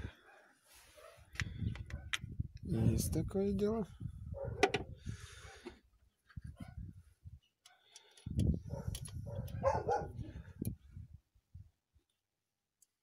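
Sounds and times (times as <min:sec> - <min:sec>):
small clicks and handling bumps: 0:07.6 - 0:09.6.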